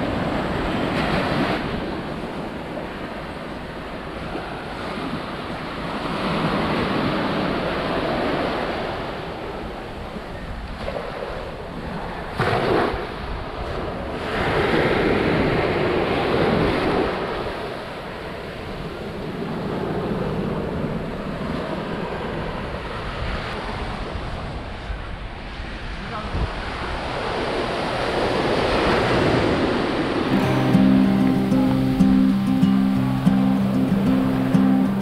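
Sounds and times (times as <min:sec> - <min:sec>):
sea surf washing onto beach: 0:25.8 - 0:35.0.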